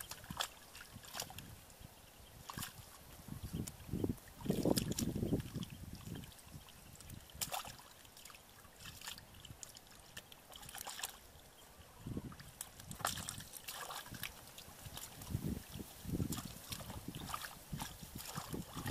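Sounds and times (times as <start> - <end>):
hands splashing in muddy water: 0.0 - 1.5, 2.5 - 6.3, 6.9 - 11.3, 12.3 - 18.9.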